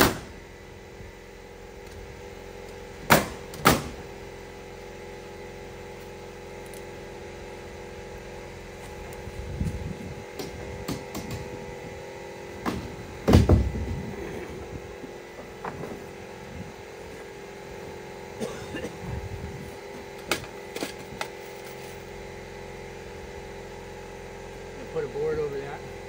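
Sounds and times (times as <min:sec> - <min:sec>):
steady mechanical hum: 0:00.0 - 0:26.0
knocks on wooden siding: 0:12.6 - 0:13.9.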